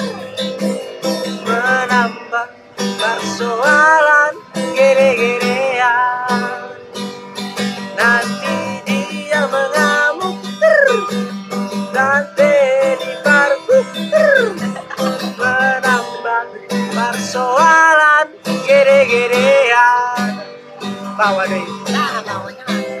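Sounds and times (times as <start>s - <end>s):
strummed acoustic guitar: 0.0s - 23.0s
man singing: 1.3s - 6.8s, 7.8s - 23.0s.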